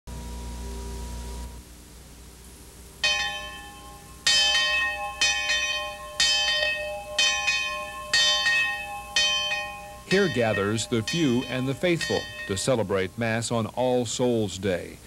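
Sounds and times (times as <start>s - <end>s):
church bell tolling: 3.0s - 13.3s.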